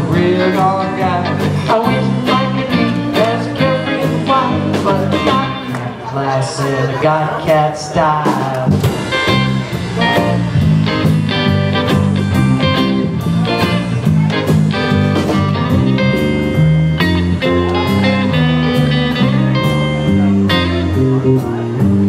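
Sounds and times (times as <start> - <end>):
bass line: 0.0 - 22.0
electric guitar lead: 0.0 - 22.0
drum hits: 8.3 - 18.9.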